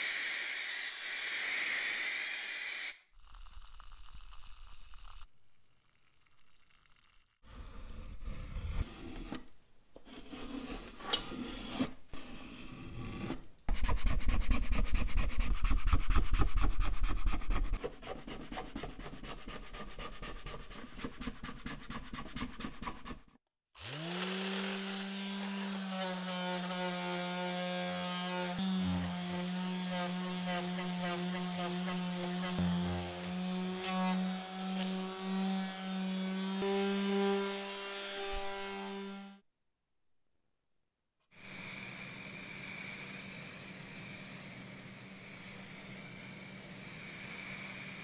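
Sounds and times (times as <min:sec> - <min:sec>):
hand sanding strokes: 0:13.7 - 0:23.3
small electric motor humming: 0:41.4 - 0:48.0.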